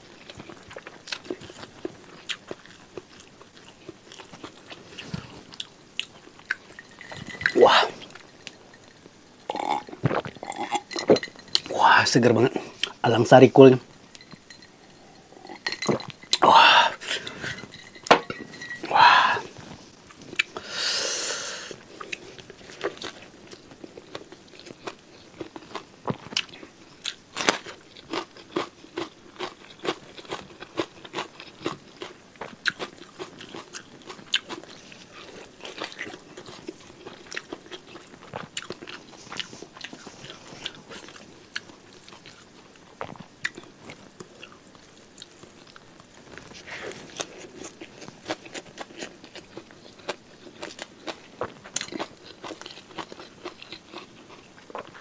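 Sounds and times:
chewing with wet crunches: 21.8s - 46.5s, 47.1s - 55.0s.

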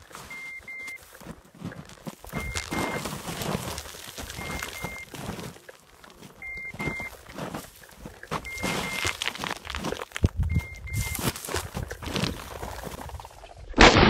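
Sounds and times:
footsteps in dry grass and snow: 0.0s - 13.6s
high electronic double beep: 2.4s - 3.1s, 4.4s - 5.1s, 8.5s - 9.1s, 10.4s - 11.3s
wind rumble on microphone: 10.2s - 11.2s.

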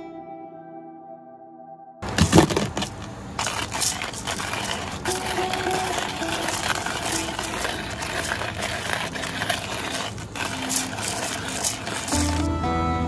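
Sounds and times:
coffee grinder grinding beans: 2.0s - 12.6s.

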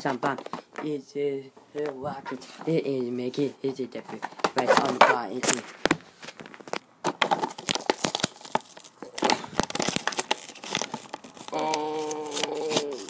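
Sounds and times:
plastic packaging crinkling: 4.1s - 13.0s.

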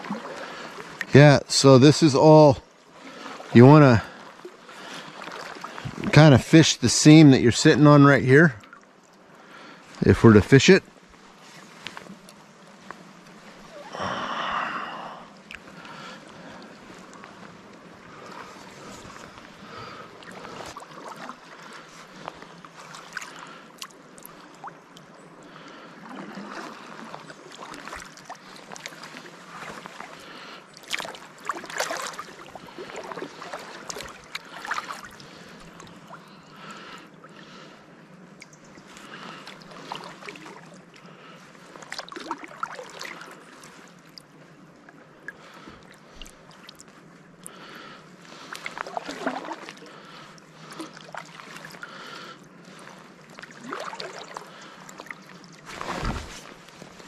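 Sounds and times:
water current washing: 0.0s - 8.6s, 9.2s - 57.0s
paddle splashing in water: 3.0s - 6.5s, 15.4s - 24.8s, 25.5s - 37.7s, 38.8s - 57.0s.

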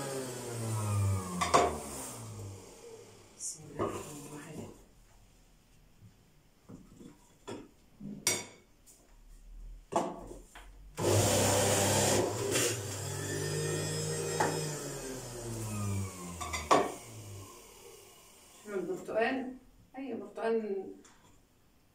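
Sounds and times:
juicer motor whirring: 0.0s - 3.4s, 11.0s - 18.7s.

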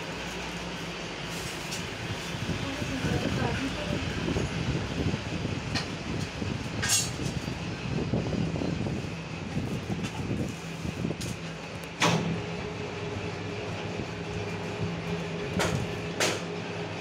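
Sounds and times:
cutting machine humming: 11.5s - 17.0s.

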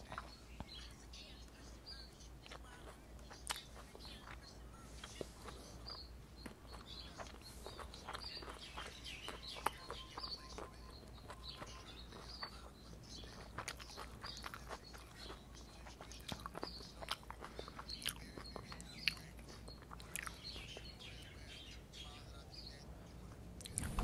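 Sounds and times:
faint high chirps: 0.0s - 24.0s.

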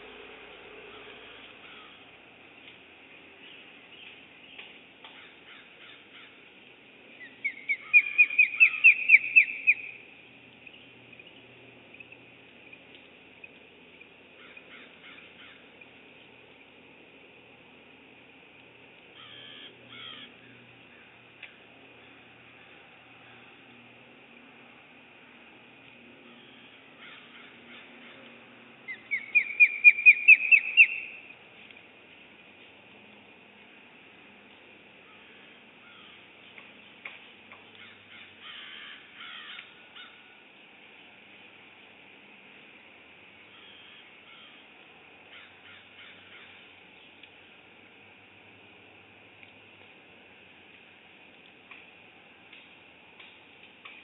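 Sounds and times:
eagle piping call: 7.2s - 10.0s, 19.1s - 21.0s, 28.9s - 31.3s.

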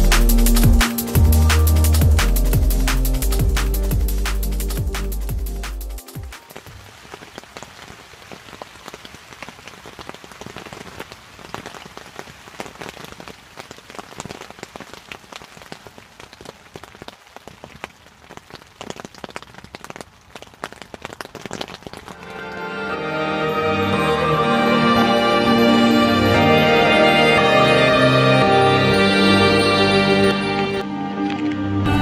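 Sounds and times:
rain pattering on fabric canopy: 0.0s - 23.3s, 30.7s - 32.0s.

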